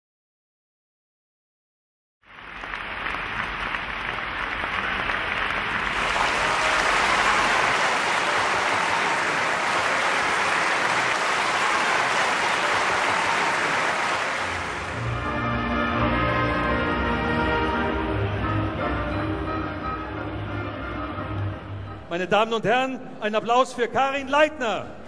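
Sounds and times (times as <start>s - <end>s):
audience applauding: 2.2s - 16.8s.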